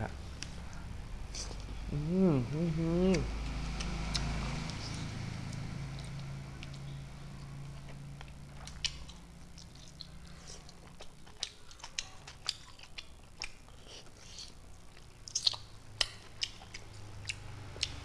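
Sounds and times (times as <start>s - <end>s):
low steady hum: 0.0s - 18.0s
chewing meat: 3.0s - 18.0s
mouth clicks and lip smacks: 15.2s - 18.0s.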